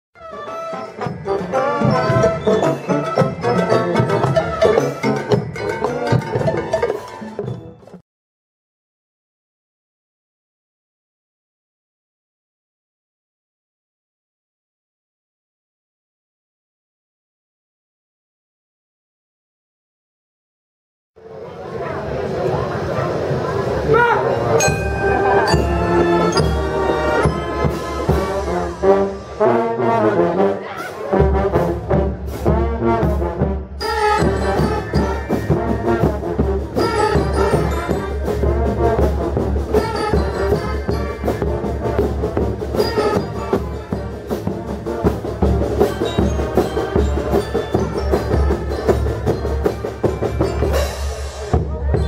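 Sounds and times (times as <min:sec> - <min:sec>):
trumpets and trombones: 0:00.2 - 0:07.6, 0:24.0 - 0:52.0
marching band playing: 0:00.2 - 0:08.0, 0:23.4 - 0:52.0.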